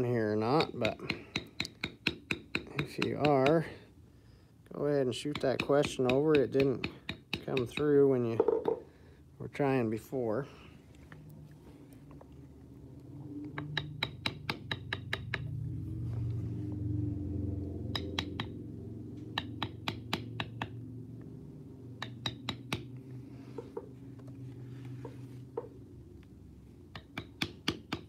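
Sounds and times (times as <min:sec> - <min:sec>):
mallet tapping leather tool: 0:00.4 - 0:03.7, 0:05.2 - 0:08.8, 0:13.5 - 0:15.6, 0:17.9 - 0:18.6, 0:19.3 - 0:20.8, 0:22.0 - 0:23.0, 0:26.9 - 0:28.0.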